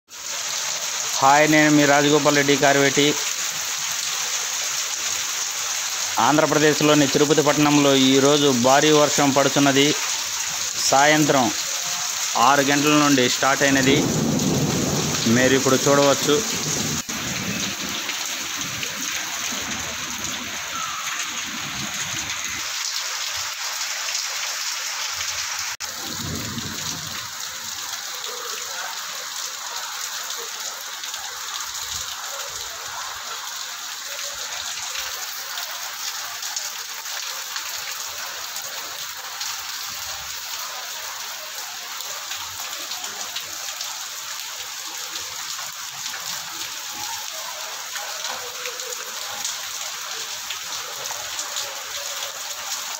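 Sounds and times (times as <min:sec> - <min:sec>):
heavy rain on pavement: 0:00.1 - 0:52.9.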